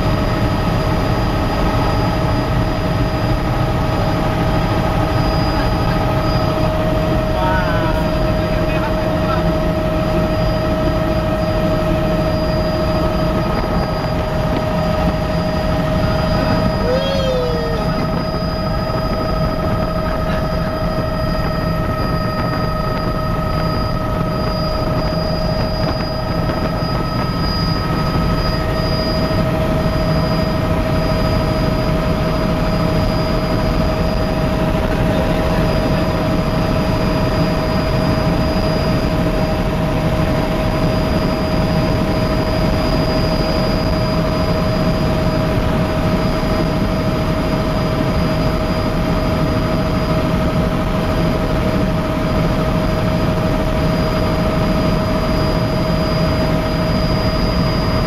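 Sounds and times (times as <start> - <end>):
whining tones: 0.0 - 50.6
helicopter engine and rotor drone: 0.0 - 58.0.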